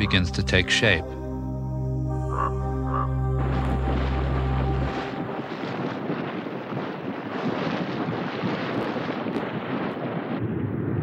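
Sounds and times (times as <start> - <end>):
wind rushing: 2.9 - 11.0.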